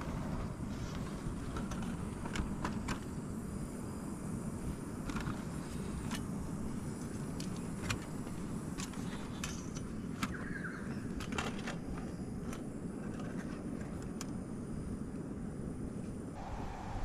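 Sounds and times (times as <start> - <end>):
steady low rumble: 14.4 - 17.0.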